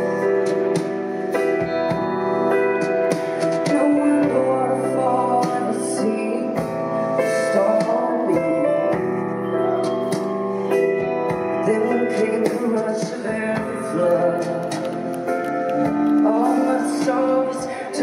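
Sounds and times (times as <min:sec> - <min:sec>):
band playing: 0:00.0 - 0:18.0
woman singing: 0:03.5 - 0:09.2, 0:11.6 - 0:18.0.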